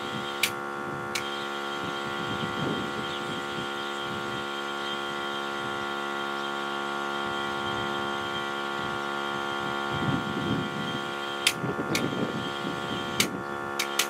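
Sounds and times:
tire compressor humming: 0.0 - 14.0
sharp clicks: 11.4 - 12.1, 13.1 - 14.0.

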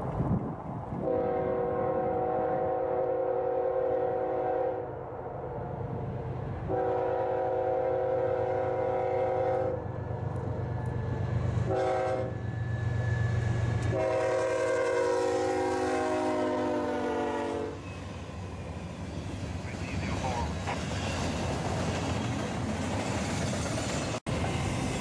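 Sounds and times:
train rumbling: 0.0 - 25.0
locomotive air horn blasts: 1.0 - 4.9, 6.7 - 9.8, 11.7 - 12.4, 13.9 - 17.8.

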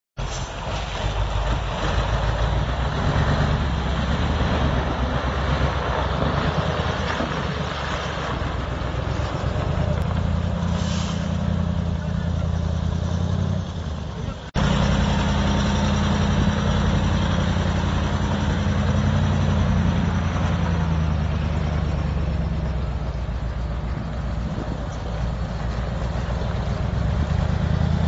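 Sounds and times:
diesel truck engine: 0.2 - 28.0.

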